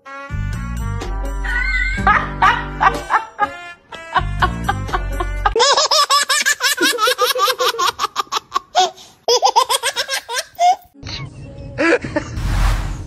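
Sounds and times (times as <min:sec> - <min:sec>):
high-pitched laughter: 0:01.6 - 0:12.4.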